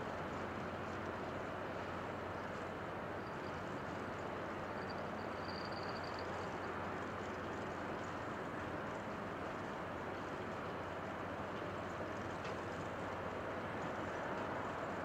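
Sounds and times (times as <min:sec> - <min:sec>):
faint high whine: 0:02.5 - 0:09.1.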